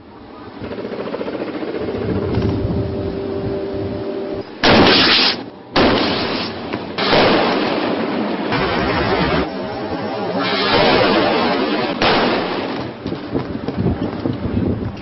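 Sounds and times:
steady loud noise: 0:00.0 - 0:15.0
rocket launcher blast: 0:04.6 - 0:09.5, 0:10.4 - 0:13.1
loud bang: 0:10.4 - 0:13.1.

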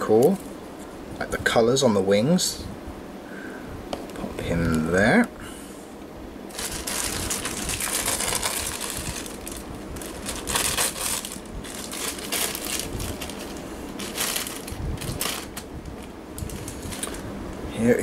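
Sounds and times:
plastic packaging crinkling: 0:06.5 - 0:17.2.

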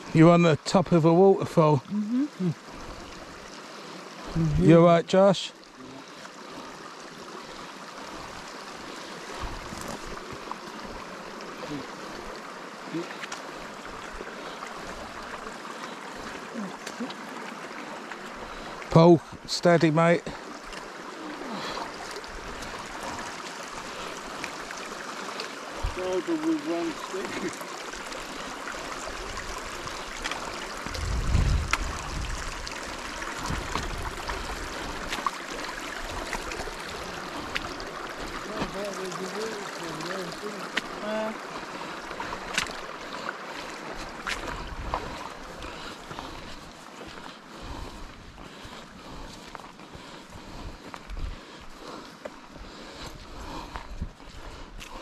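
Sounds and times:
stream pouring over waterfall: 0:00.0 - 0:55.0.

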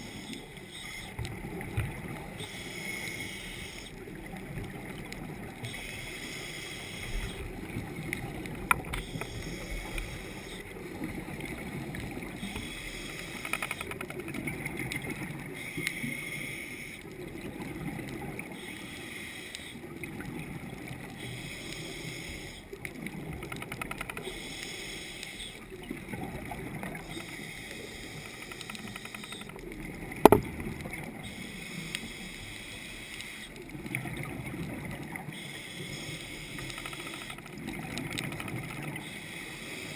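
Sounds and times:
underwater rumble and hiss: 0:00.0 - 0:39.9.

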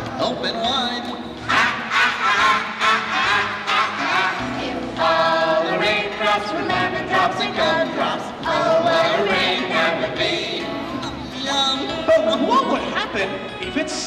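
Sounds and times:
light musical accompaniment: 0:00.0 - 0:14.0
group of voices singing: 0:01.4 - 0:12.1.

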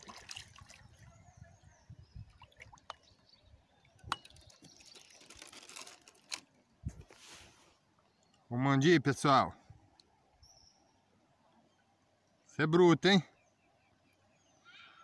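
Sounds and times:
water splashing and dripping: 0:00.0 - 0:01.1, 0:02.2 - 0:03.2.

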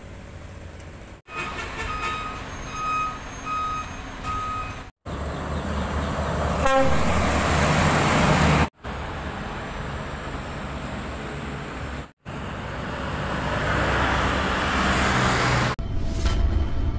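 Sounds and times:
diesel truck engine rumble: 0:00.0 - 0:15.8
road noise: 0:00.0 - 0:16.9
short high beeps: 0:01.3 - 0:04.9.

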